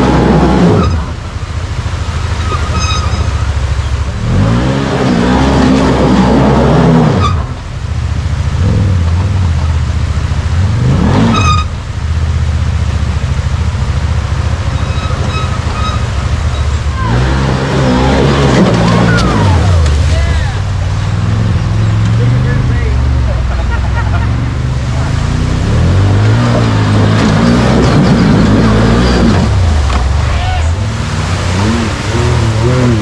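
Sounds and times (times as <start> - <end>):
engine revving hard: 0.0 - 1.1, 4.2 - 7.5, 10.6 - 11.6, 14.8 - 20.3, 24.0 - 30.0, 30.7 - 33.0
creek water rushing: 0.0 - 33.0.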